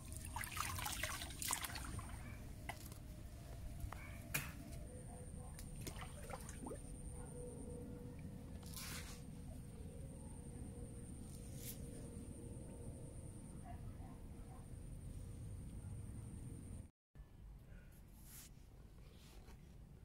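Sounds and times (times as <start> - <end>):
water splashes and drips: 0.0 - 2.8, 5.6 - 6.9.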